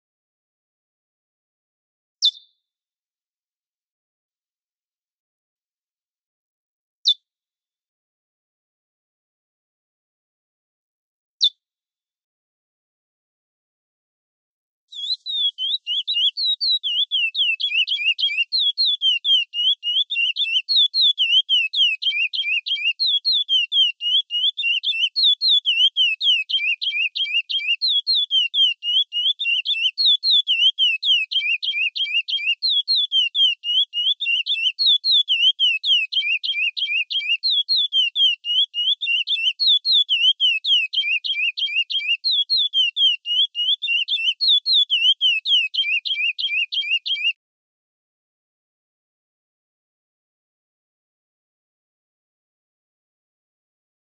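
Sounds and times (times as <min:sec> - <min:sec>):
finch singing high whistled chirps: 0:02.2 - 0:02.5, 0:14.9 - 0:47.4.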